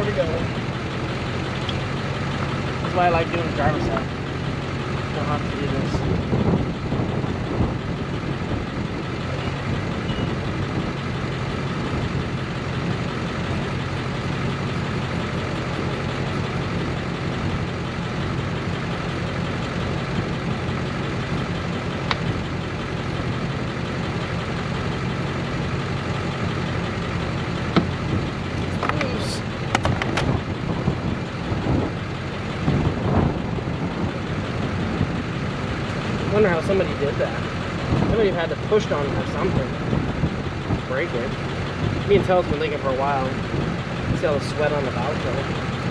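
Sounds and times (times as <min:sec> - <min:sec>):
engine-like drone: 0:00.0 - 0:45.9.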